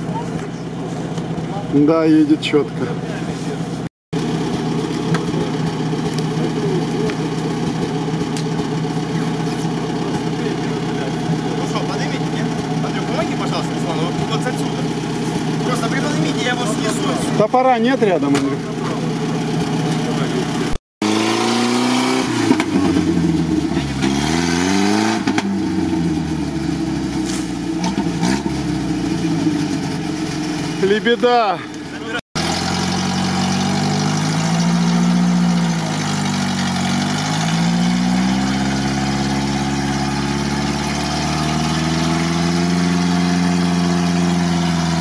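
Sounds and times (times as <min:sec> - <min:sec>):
car engine idling: 0:00.0 - 0:20.8, 0:22.5 - 0:24.1, 0:25.4 - 0:45.0.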